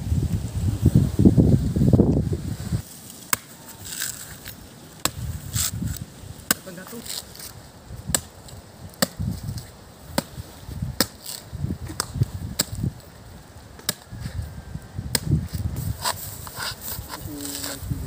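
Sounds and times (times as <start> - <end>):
machete chopping into coconut: 3.3 - 7.5, 8.1 - 12.9, 13.8 - 14.2, 15.1 - 15.4, 16.0 - 17.8.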